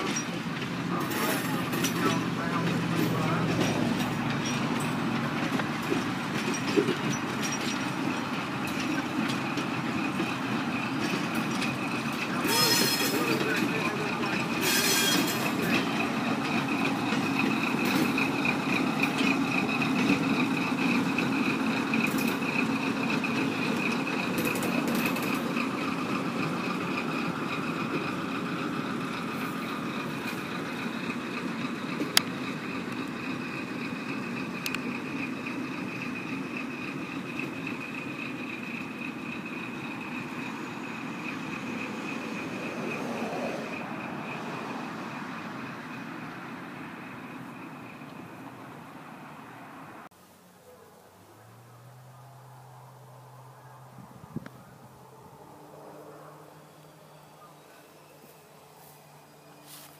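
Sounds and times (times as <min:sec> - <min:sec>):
train wheels on rails: 0:00.0 - 0:49.1, 0:57.8 - 0:59.9
locomotive engine noise: 0:00.0 - 0:59.9.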